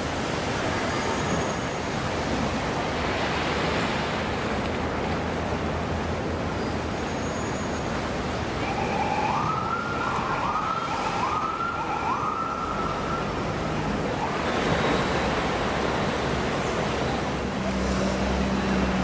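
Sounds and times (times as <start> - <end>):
surf noise: 0.0 - 19.0
emergency vehicle siren wailing: 8.5 - 14.6.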